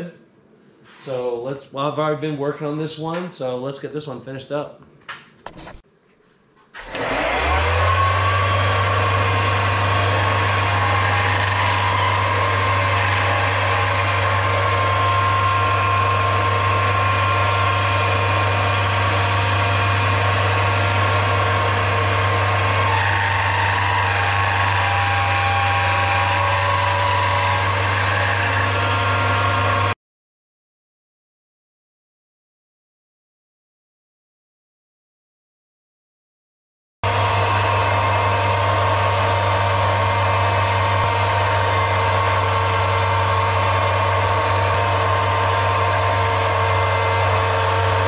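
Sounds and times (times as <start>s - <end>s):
lathe motor whining and humming: 6.8s - 30.0s, 37.0s - 48.0s
lathe tool cutting hiss: 6.9s - 29.9s.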